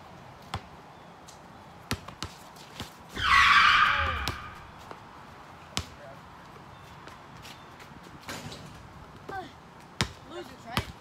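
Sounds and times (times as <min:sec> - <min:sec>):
loud scraping skid: 0:03.2 - 0:04.8.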